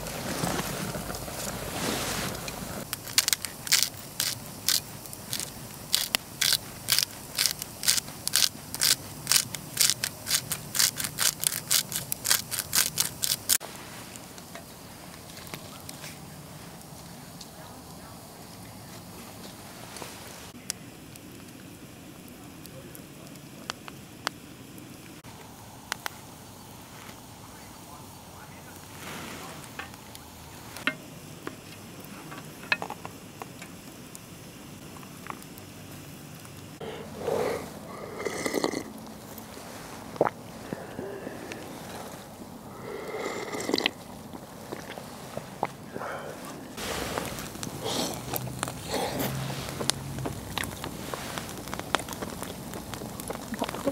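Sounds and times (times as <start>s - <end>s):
campfire crackling: 0.0s - 53.9s
steady low hiss: 0.0s - 53.9s
spice grinder rasping: 2.8s - 13.6s.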